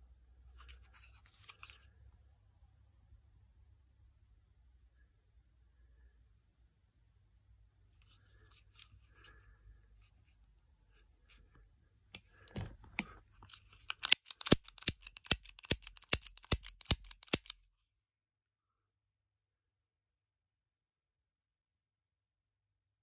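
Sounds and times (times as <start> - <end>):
handling clicks: 12.8 - 17.6
pistol trigger clicking: 13.9 - 17.6.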